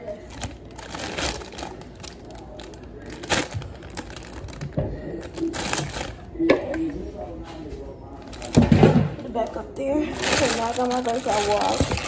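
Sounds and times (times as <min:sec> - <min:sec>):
plastic bag crinkling: 0:00.0 - 0:06.3, 0:08.2 - 0:12.0
grapes shifting in bag: 0:00.2 - 0:06.3, 0:10.0 - 0:12.0.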